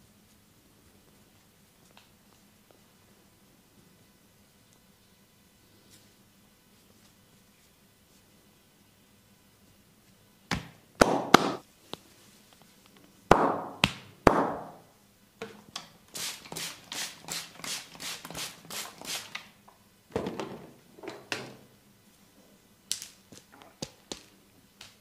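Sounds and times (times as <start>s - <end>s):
hands slapping body: 10.5s - 11.6s, 13.3s - 14.8s.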